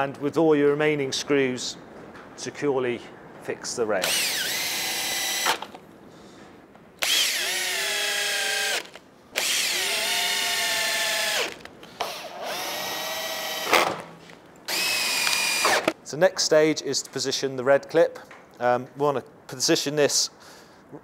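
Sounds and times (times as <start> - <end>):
cordless drill driving screws: 4.0 - 5.8, 7.0 - 14.0, 14.7 - 16.0.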